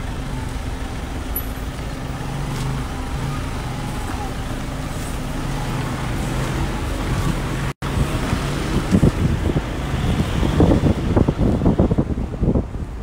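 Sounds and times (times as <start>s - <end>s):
car engine and road hum: 0.0s - 13.0s
wind buffeting microphone: 6.0s - 13.0s.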